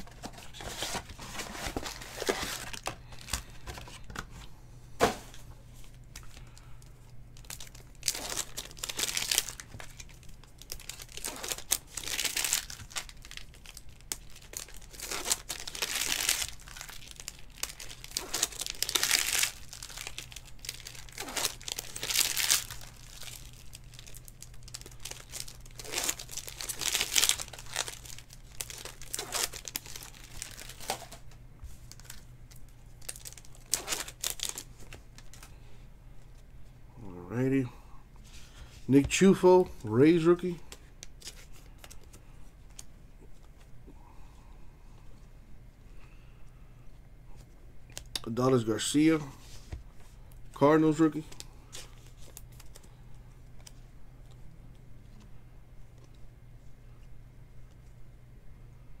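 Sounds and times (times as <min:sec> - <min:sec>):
card pack wrappers crinkling: 0:00.0 - 0:04.2, 0:05.8 - 0:35.6, 0:39.0 - 0:42.9, 0:50.3 - 0:53.8.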